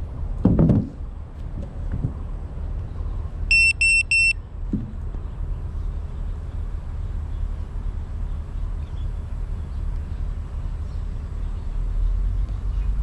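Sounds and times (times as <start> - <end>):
short high-pitched electronic beeps: 3.5 - 4.4.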